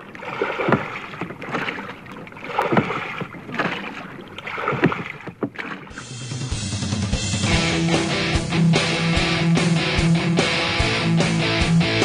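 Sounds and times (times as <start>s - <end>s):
oars splashing through water: 0.0s - 6.7s.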